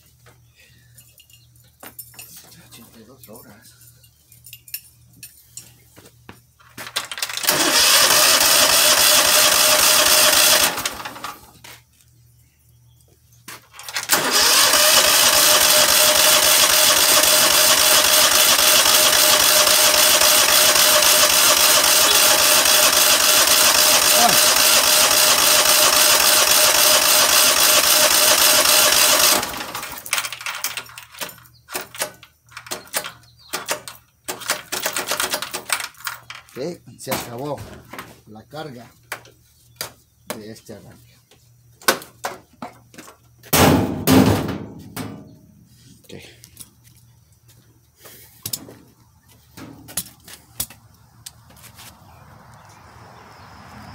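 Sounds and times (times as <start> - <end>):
engine cranking without starting: 6.9 - 11.5, 13.7 - 36.5.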